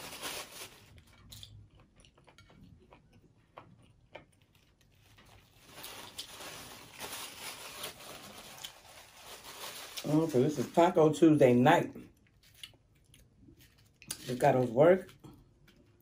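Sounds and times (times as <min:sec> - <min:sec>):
paper napkin rustling and crinkling: 0:00.0 - 0:01.0, 0:04.9 - 0:11.0.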